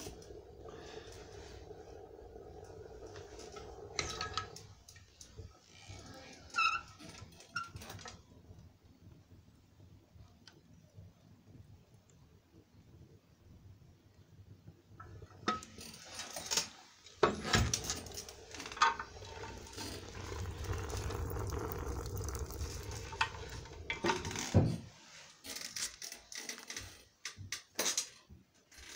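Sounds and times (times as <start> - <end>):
low rumble: 0.0 - 5.6, 17.6 - 24.7.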